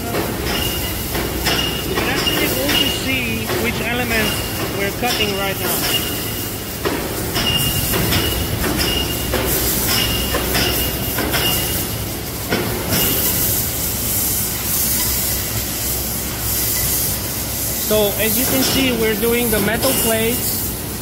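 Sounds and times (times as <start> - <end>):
high machine whine: 0.0 - 21.0
machine noise and hiss: 0.0 - 21.0
sharp knocks: 6.8 - 11.7.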